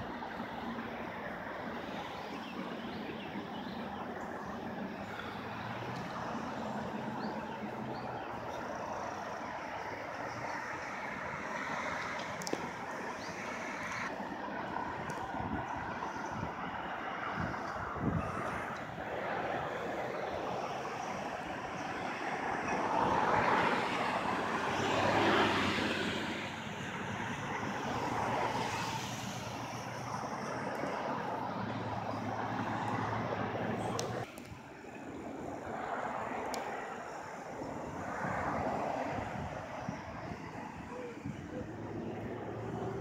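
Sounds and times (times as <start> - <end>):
road traffic hum: 0.0 - 43.0.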